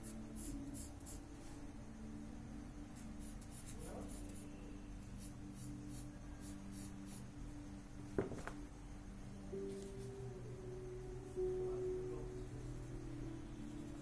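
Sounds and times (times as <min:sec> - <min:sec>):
pencil scratching on paper: 0:03.2 - 0:04.4.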